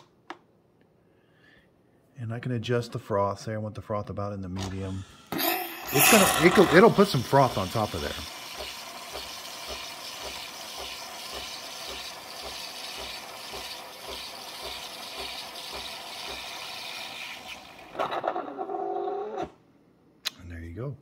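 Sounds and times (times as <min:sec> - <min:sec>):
milk frother hissing with low pulsing: 0:05.1 - 0:18.0.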